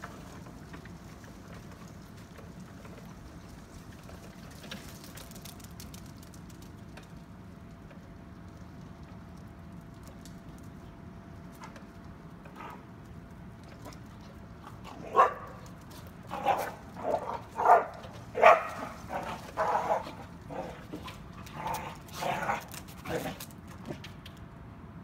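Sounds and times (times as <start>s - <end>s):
dog barking: 15.0s - 15.6s, 16.4s - 20.1s.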